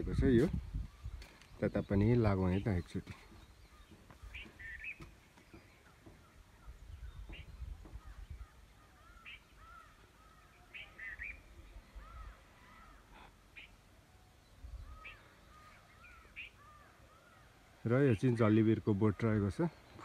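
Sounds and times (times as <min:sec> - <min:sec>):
birds calling: 0:00.0 - 0:20.0
faint caws: 0:07.9 - 0:11.1, 0:12.0 - 0:13.8, 0:14.8 - 0:17.6.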